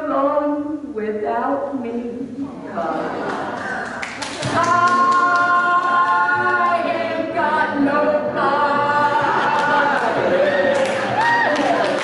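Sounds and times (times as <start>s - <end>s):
woman singing long notes: 4.4s - 10.2s.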